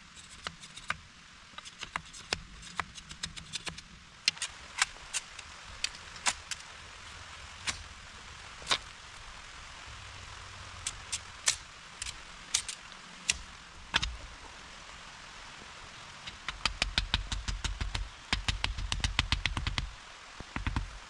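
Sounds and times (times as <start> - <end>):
rain hiss: 0.0 - 21.0
tool knocking on wood: 16.4 - 19.9.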